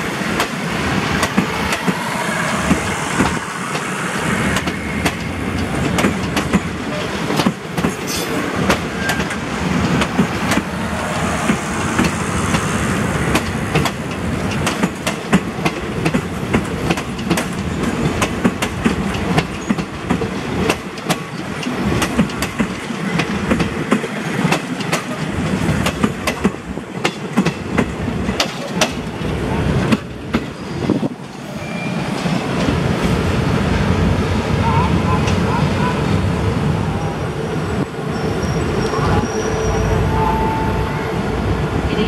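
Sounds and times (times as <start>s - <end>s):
train wheels clacking over rail joints: 4.5s - 10.8s, 11.4s - 31.4s.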